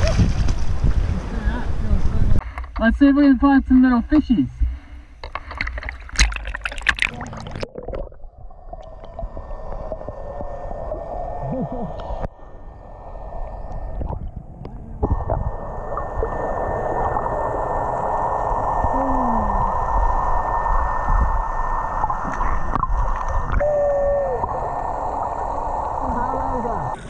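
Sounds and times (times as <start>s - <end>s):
muffled underwater water noise: 4.5s - 27.0s
camera splashing into water: 5.6s - 8.1s.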